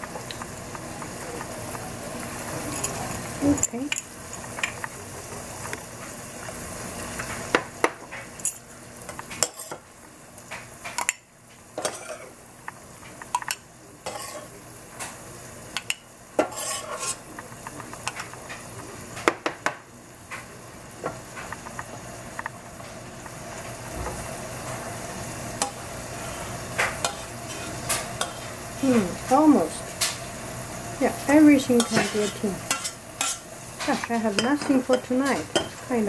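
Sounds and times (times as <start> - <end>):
sauce sizzling in pan: 0.0 - 36.0
metal spoon clinking on saucepan: 34.0 - 35.8.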